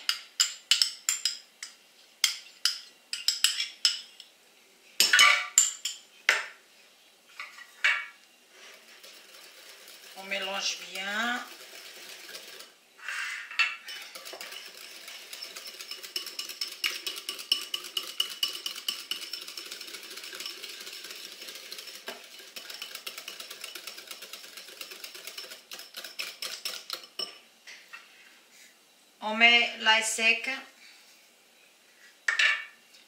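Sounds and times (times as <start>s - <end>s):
whisk clinking in metal bowl: 13.9s - 27.4s.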